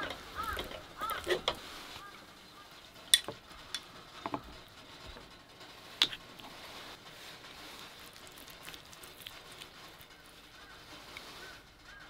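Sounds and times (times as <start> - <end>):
spoon stirring rice in pot: 0.0 - 2.2.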